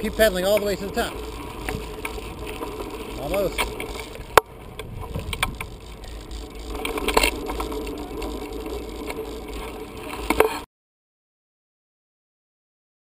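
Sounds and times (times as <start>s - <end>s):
bicycle rolling over dirt: 0.0s - 10.6s
bicycle rattling: 0.0s - 10.7s
wind on microphone: 3.5s - 8.5s.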